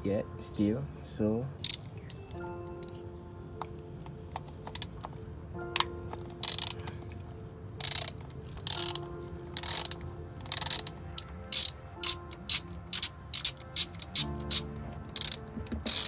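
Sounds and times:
ratchet wrench clicking: 1.6 - 1.9, 5.8 - 6.9, 7.8 - 9.0, 9.6 - 16.0.

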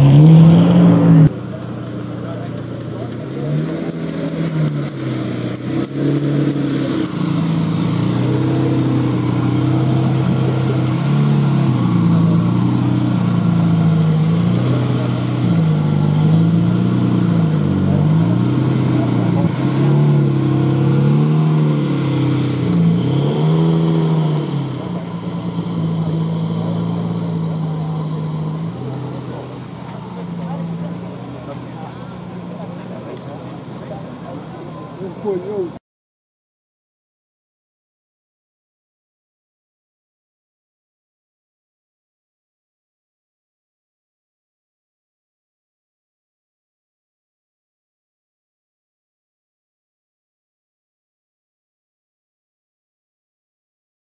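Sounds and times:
engine revving: 0.0 - 35.7
car engine idling: 0.1 - 35.8.

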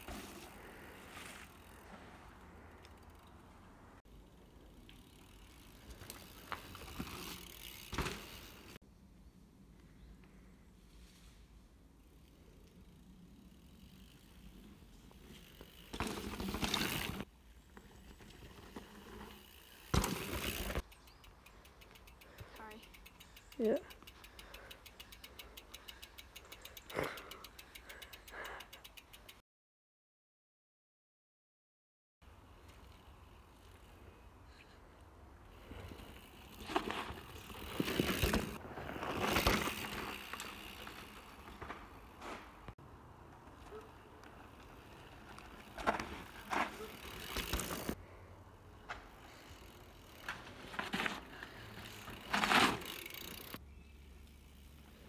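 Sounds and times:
bike tyres skidding on dirt: 0.0 - 2.7, 4.3 - 8.8, 13.3 - 20.9, 35.5 - 48.2, 48.8 - 55.0
bicycle freehub ticking: 4.1 - 8.5, 19.3 - 29.4, 39.3 - 41.7, 44.8 - 48.0, 51.4 - 54.8
short breaths: 21.5 - 29.2.

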